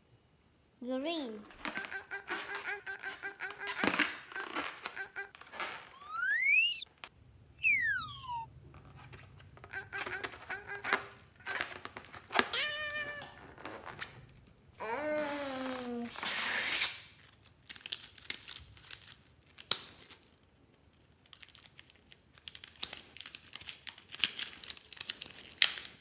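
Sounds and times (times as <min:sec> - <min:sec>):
squeaky cartoon tones: 0:01.4 - 0:06.9, 0:07.6 - 0:08.5, 0:09.6 - 0:11.8, 0:12.4 - 0:13.4
slide whistle gliding: 0:05.9 - 0:06.9, 0:07.6 - 0:08.5.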